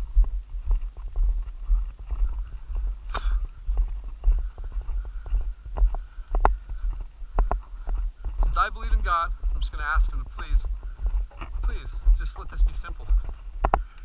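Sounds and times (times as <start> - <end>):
footsteps crunching on gravel: 0.0 - 14.0
camera jostling thuds: 3.1 - 13.9.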